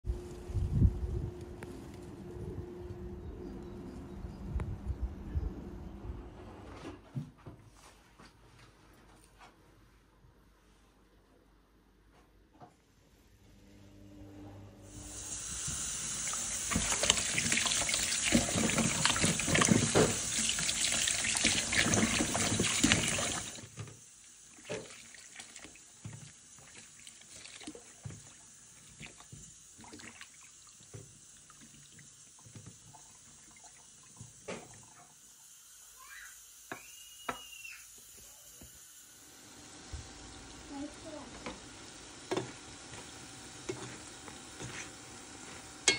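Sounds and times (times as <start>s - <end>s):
tap running into plastic bowl: 18.3s - 20.3s.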